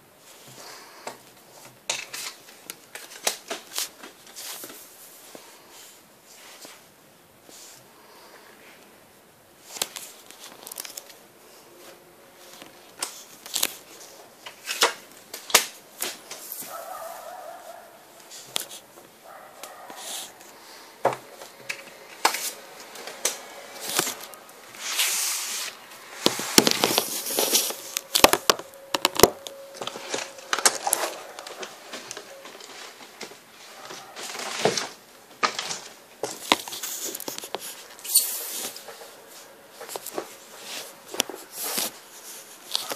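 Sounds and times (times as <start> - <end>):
trading cards being handled: 12.4 - 34.2, 36.2 - 42.9.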